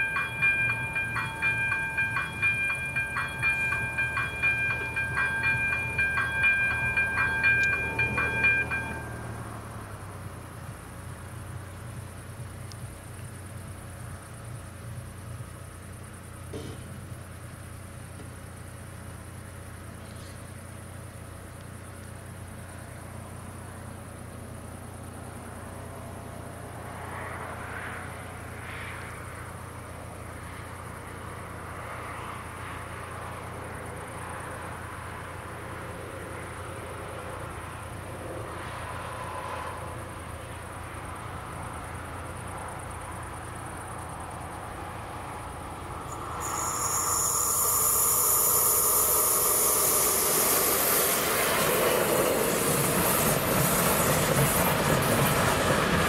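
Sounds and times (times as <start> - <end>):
crickets chirping: 0.0 - 56.0
train approaching: 0.0 - 56.0.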